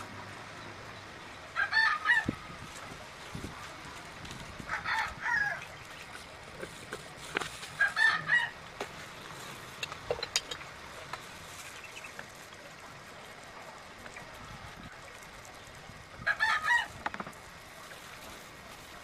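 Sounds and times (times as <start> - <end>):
rooster crowing: 1.6 - 2.4, 4.7 - 5.7, 7.8 - 8.6, 16.2 - 16.9.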